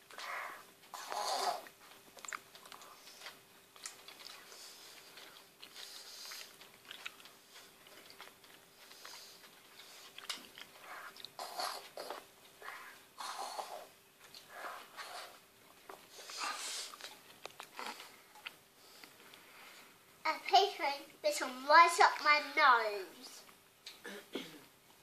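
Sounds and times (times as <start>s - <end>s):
child chewing and munching: 0.0s - 19.5s.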